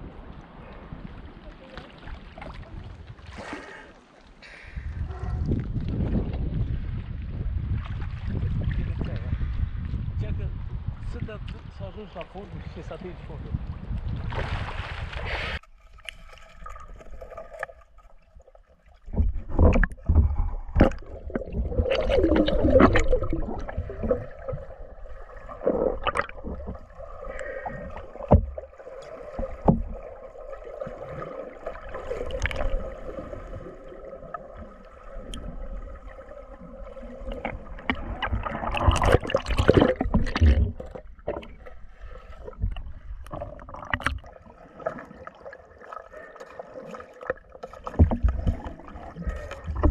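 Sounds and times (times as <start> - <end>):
water sloshing and gurgling: 0.0 - 49.9
knocks and low thumps: 19.1 - 22.0.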